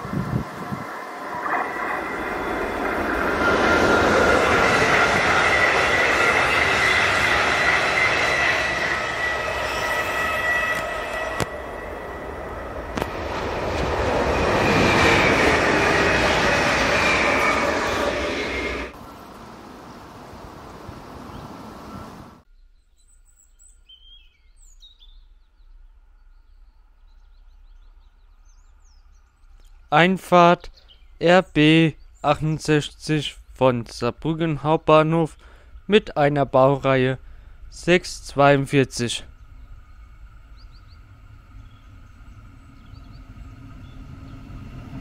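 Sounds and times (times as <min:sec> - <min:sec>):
train rushing past: 0:00.0 - 0:22.4, 0:27.7 - 0:45.0
steady high whine: 0:00.0 - 0:22.5
songbirds chirping and singing: 0:19.2 - 0:35.5, 0:39.1 - 0:44.5.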